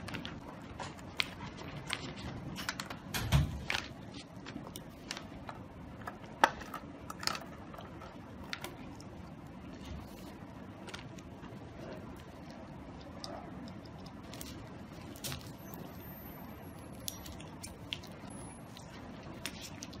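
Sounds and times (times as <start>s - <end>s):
plastic handling clicks and rustles: 0.0s - 9.0s.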